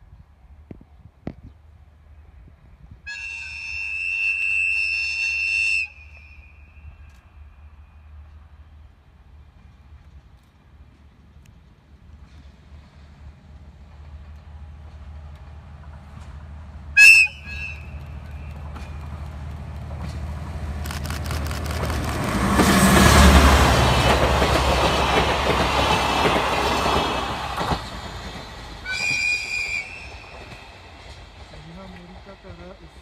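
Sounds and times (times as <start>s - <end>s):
locomotive engine low rumble: 7.2s - 33.0s
locomotive horn blast: 17.0s - 18.5s.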